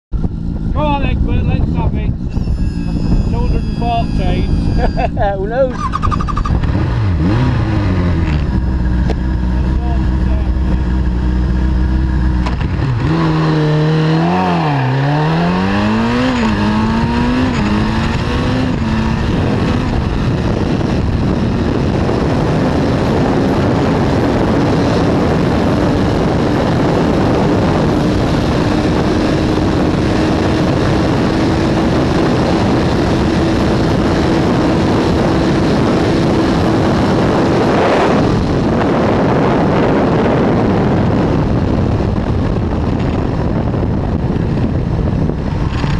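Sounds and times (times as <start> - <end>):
motorcycle engine accelerating: 0.1 - 45.9
wind rushing on microphone: 0.1 - 45.9.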